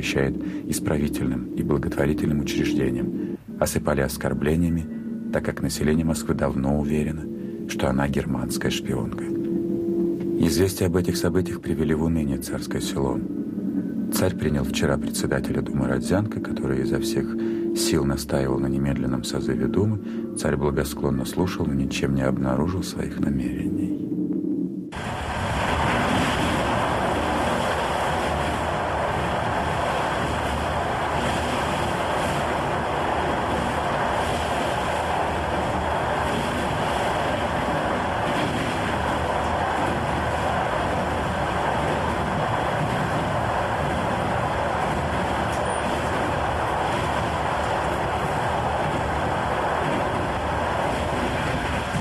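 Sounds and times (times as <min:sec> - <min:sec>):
train in motion from aboard: 0:00.0 - 0:21.7, 0:24.9 - 0:52.0.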